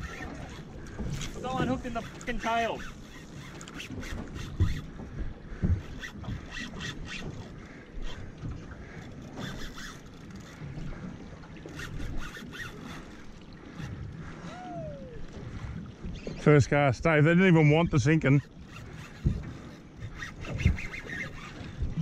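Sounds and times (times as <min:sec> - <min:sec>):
water lapping against hull: 0:00.0 - 0:22.0
sharp knocks and clicks: 0:00.2 - 0:07.5, 0:18.7 - 0:22.0
wind on microphone: 0:19.0 - 0:22.0.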